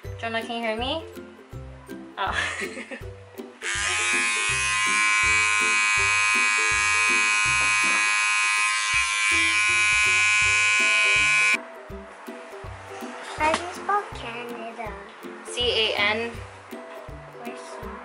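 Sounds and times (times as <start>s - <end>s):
electric hair trimmer buzzing: 3.6s - 11.6s.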